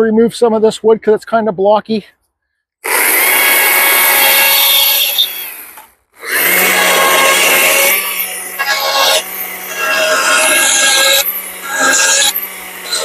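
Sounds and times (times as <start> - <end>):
chainsaw cutting wood: 2.8 - 13.0.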